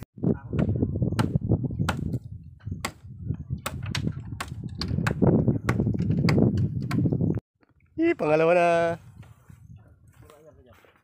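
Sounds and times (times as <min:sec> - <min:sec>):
wind rumble on microphone: 0:00.0 - 0:10.8
bamboo poles knocking and creaking: 0:03.6 - 0:07.8.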